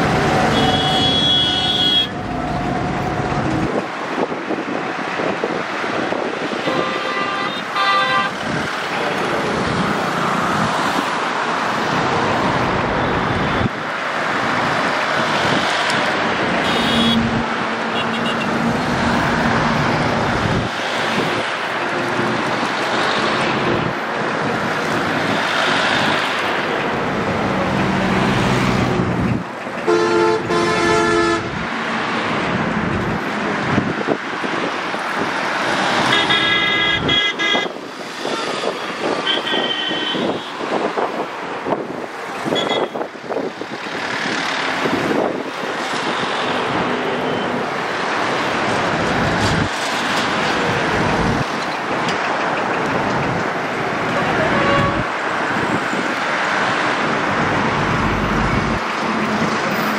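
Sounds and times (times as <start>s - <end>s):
road traffic noise: 0.0s - 59.9s
vehicle horns honking: 0.4s - 2.2s, 6.6s - 8.4s, 16.6s - 18.6s, 29.8s - 31.6s, 36.1s - 37.7s, 39.1s - 40.6s, 42.5s - 43.0s, 54.1s - 55.1s
tractor engines running: 13.9s - 29.9s, 43.2s - 59.9s.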